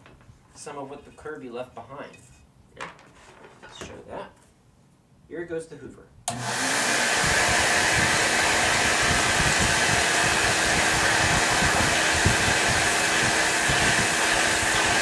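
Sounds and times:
vacuum cleaner running: 6.3 - 15.0.

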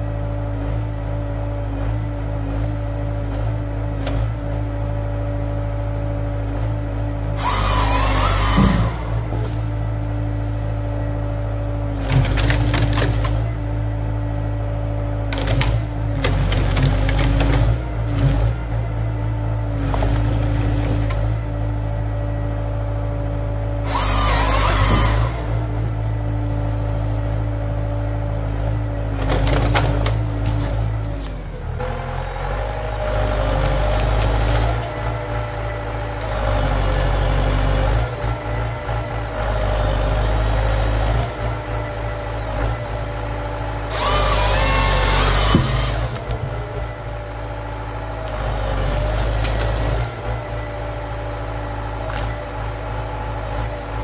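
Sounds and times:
tractor engine and hydraulics: 0.0 - 54.0
saw cutting through log: 7.2 - 13.7, 15.2 - 18.8, 23.3 - 27.8, 28.6 - 54.0
wood cracking and splintering: 12.0 - 13.5, 29.2 - 31.4, 43.9 - 46.8.

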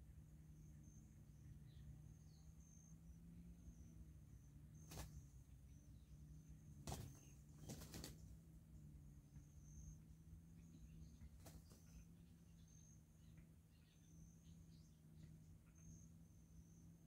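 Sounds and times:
faint high insect buzz: 0.3 - 8.3.

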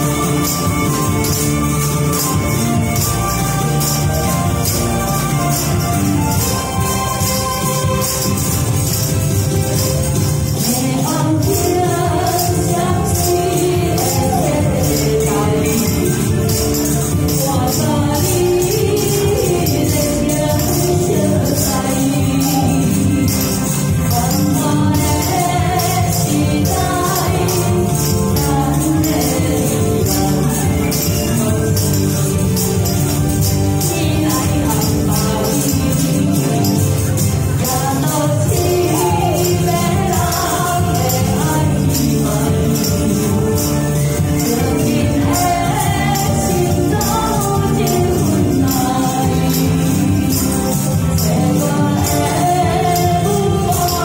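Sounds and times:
backing music: 0.0 - 54.0
tambourines jingling: 0.0 - 54.0
woman singing into microphone: 10.6 - 16.3, 17.2 - 32.4, 33.8 - 36.8, 37.6 - 54.0.

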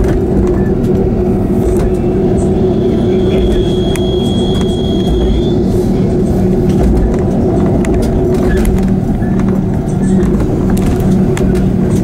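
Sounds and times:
diesel railcar engine drone: 0.0 - 12.0
thin high whine: 1.7 - 7.4.

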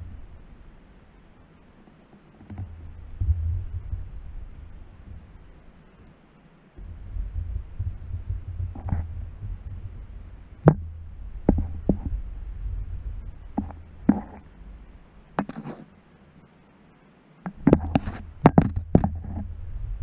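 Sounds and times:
low rumble: 0.0 - 0.8, 2.6 - 5.8, 6.8 - 15.4, 19.4 - 20.0
camera knocking on stone walls: 2.4 - 4.2, 6.8 - 12.2, 13.5 - 14.5, 15.4 - 15.8, 17.5 - 19.5.

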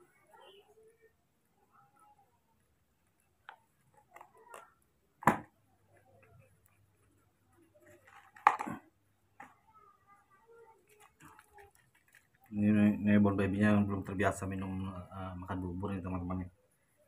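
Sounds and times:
faint clicks and taps: 2.6 - 9.8, 10.6 - 12.6.

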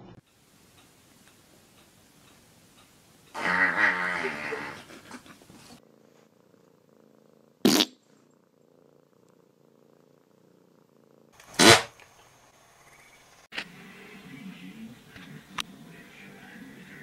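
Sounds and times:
cat hissing: 3.3 - 5.8, 7.6 - 8.2.

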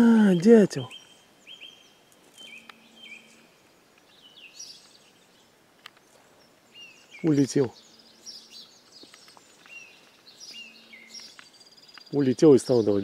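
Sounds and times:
faint bird calls: 0.2 - 13.0
sharp clicks: 5.8 - 6.1, 11.1 - 12.2.

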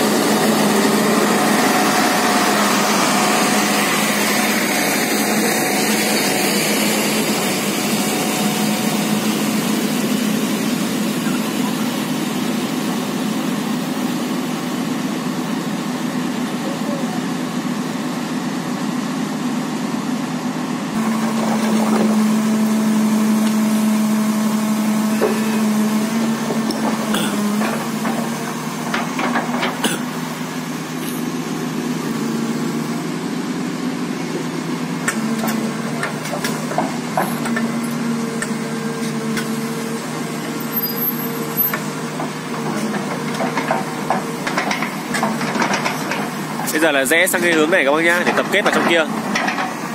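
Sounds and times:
diesel excavator engine: 0.0 - 49.9
metal clanks and knocks: 41.7 - 46.3, 47.4 - 49.8.

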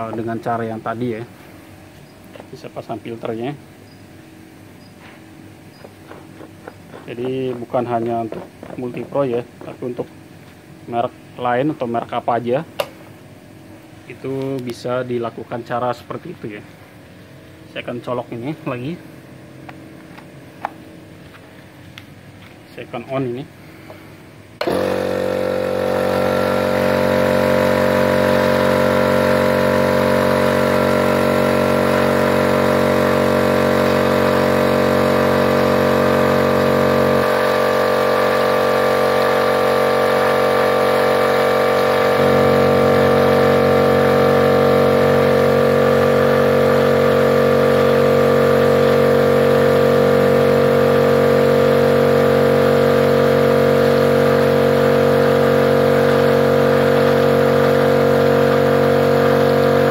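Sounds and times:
electric air compressor running: 0.0 - 11.6, 23.6 - 59.9.

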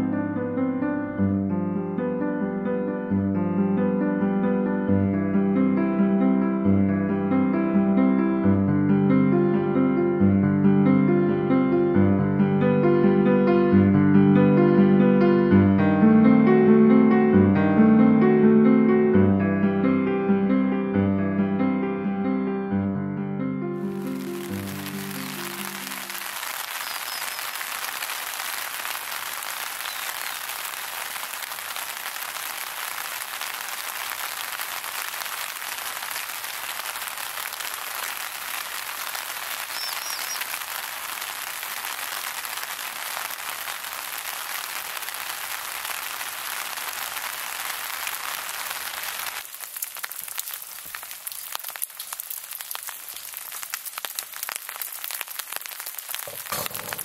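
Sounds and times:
heavy rain hissing: 23.8 - 57.0.

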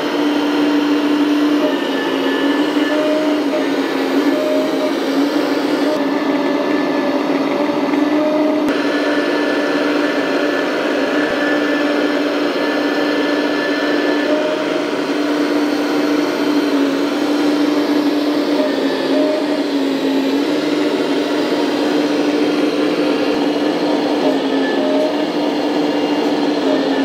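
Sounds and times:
electric hydraulic pump whine: 0.0 - 27.0.

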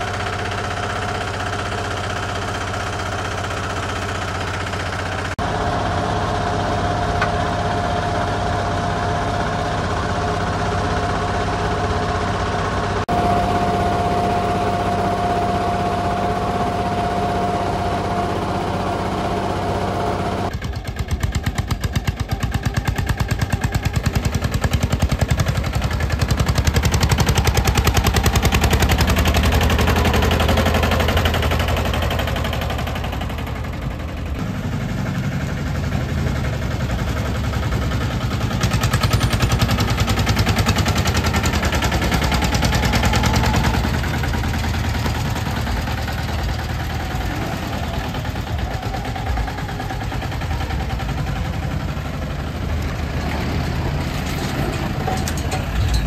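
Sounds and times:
small diesel tractor engine: 0.0 - 56.0.

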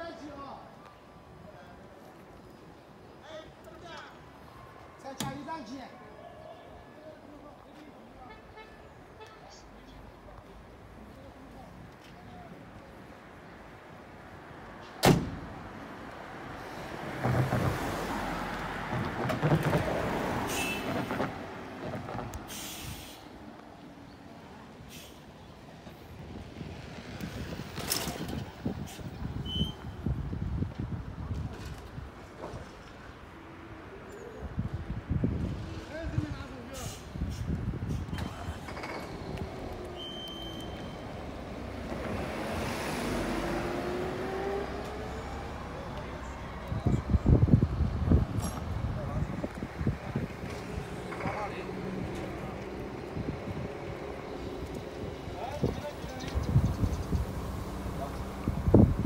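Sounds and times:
bus driving past: 13.2 - 30.0, 36.7 - 59.0
short air hisses: 22.5 - 23.4, 24.9 - 25.3, 36.7 - 38.1
diesel truck driving past: 36.8 - 55.4.

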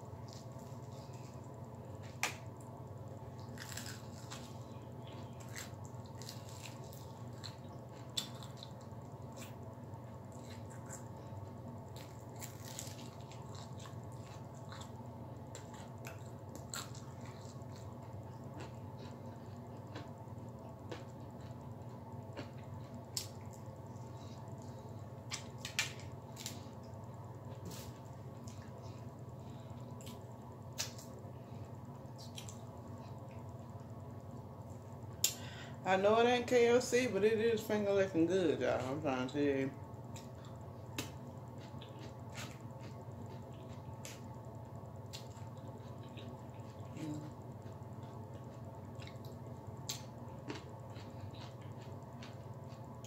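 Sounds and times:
steady low hum: 0.0 - 53.0
person chewing chicken: 3.4 - 9.6, 10.3 - 25.5, 40.1 - 44.3, 45.1 - 53.0.

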